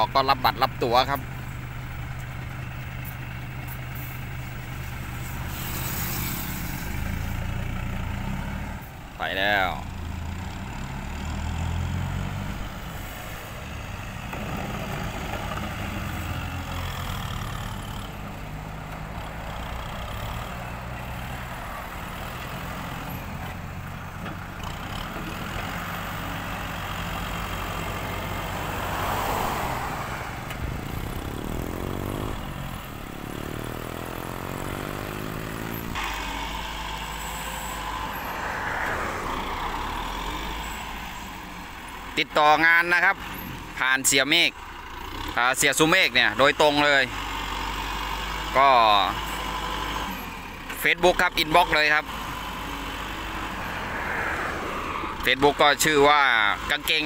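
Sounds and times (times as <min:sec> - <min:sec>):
diesel tractor engine running: 0:00.0 - 0:57.0
vehicle passing on road: 0:00.0 - 0:57.0.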